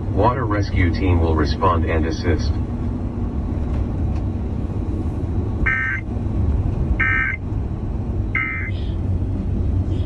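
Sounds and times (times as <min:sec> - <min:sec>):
tyres on road: 0:00.0 - 0:10.0
van engine rumble: 0:00.0 - 0:10.0
buzzy data tones from radio: 0:05.7 - 0:06.0, 0:07.0 - 0:07.4, 0:08.4 - 0:08.7.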